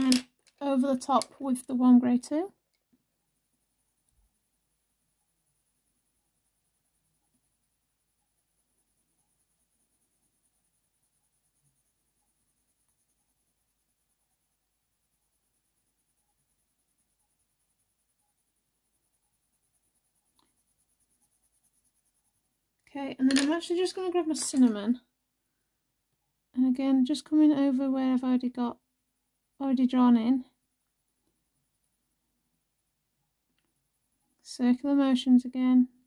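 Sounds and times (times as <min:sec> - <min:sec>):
pencil scratching on paper: 0:03.0 - 0:24.8, 0:29.9 - 0:33.0, 0:33.6 - 0:35.1.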